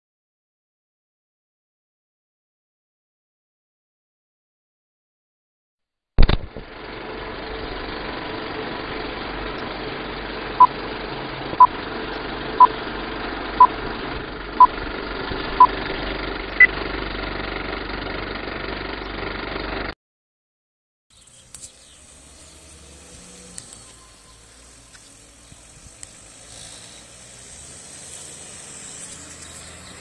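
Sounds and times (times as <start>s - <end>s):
sharp click: 6.2s - 6.6s.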